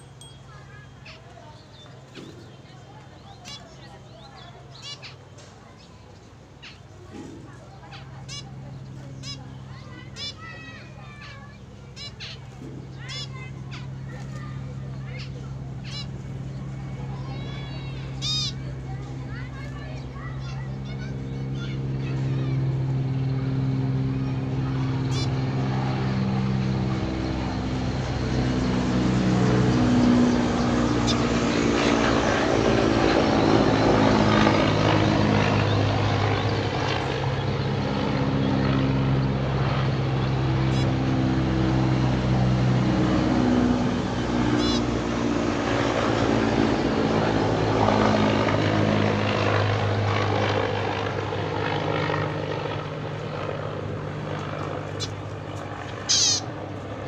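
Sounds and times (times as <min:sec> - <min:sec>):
finch calls: 0:00.5 - 0:16.6, 0:17.2 - 0:18.6, 0:25.1 - 0:25.3, 0:40.2 - 0:41.0, 0:44.5 - 0:45.0, 0:54.6 - 0:56.6
loud steady drone: 0:22.7 - 0:57.0.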